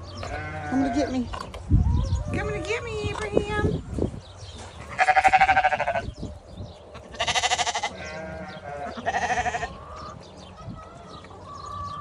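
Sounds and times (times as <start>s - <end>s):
sheep bleating: 0.2s - 1.2s, 4.9s - 6.1s, 7.1s - 9.7s.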